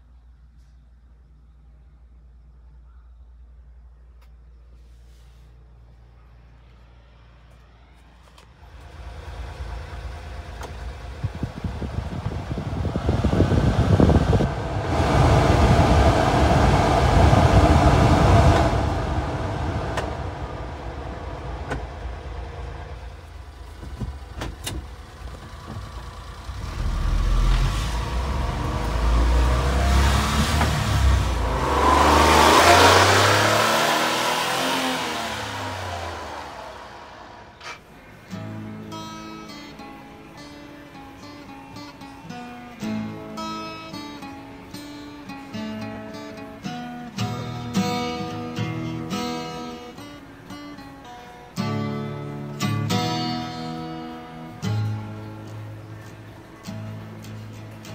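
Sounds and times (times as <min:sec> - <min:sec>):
heater fan rushing air: 0:05.0 - 0:38.3
truck engine running: 0:08.5 - 0:38.2.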